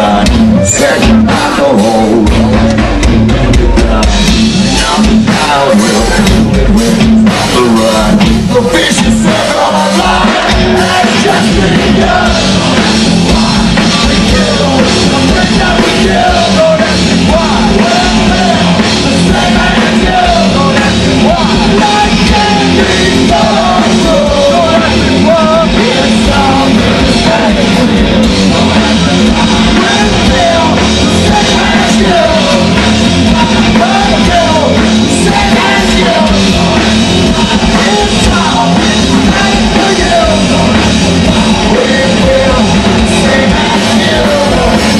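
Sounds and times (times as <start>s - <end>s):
bass guitar: 0.0s - 44.9s
drums: 0.0s - 44.9s
person singing and yelling: 0.0s - 44.9s.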